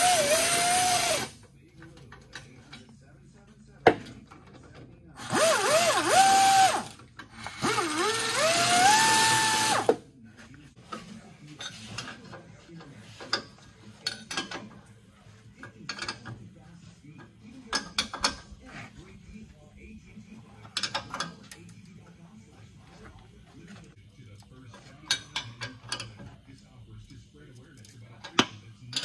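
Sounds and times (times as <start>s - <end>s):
air ratchet running: 0.0s - 1.3s, 5.2s - 9.9s.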